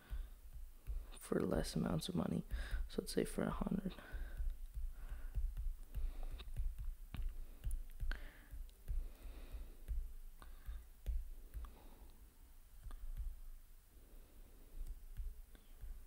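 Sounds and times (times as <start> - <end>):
pen taps on whiteboard: 0.0 - 1.7, 3.9 - 11.8, 12.8 - 13.6, 14.8 - 16.0.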